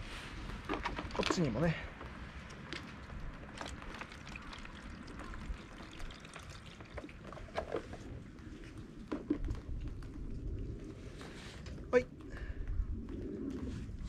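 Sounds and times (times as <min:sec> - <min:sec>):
water trickling into plastic bottle: 0:02.0 - 0:10.6
water gurgling: 0:03.4 - 0:10.5.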